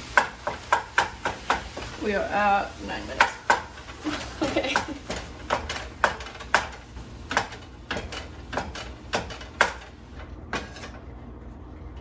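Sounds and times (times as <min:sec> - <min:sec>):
spatula knocking against skillet: 0:00.1 - 0:02.0, 0:03.2 - 0:09.9.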